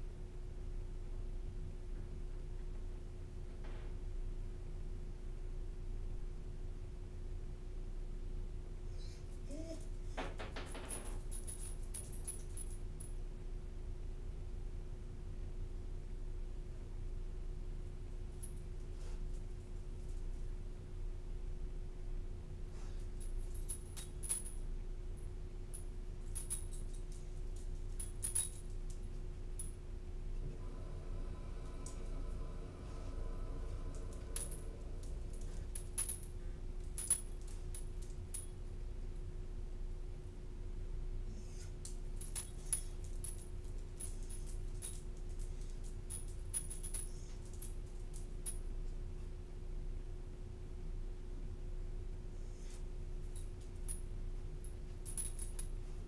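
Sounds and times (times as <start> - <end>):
steady low hum: 0.0 - 56.0
metal dog tags jingling: 10.8 - 12.8, 25.8 - 28.7, 42.2 - 47.8, 54.8 - 55.7.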